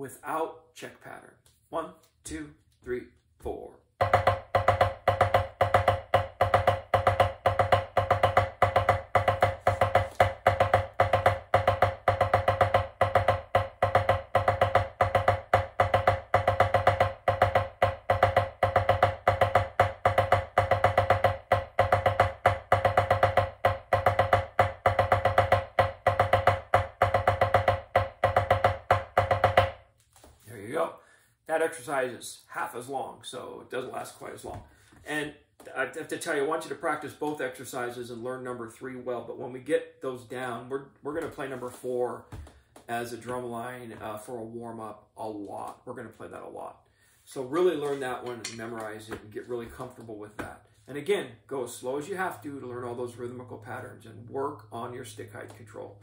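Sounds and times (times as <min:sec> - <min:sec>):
drumsticks striking a drum: 0:47.8 - 0:48.9.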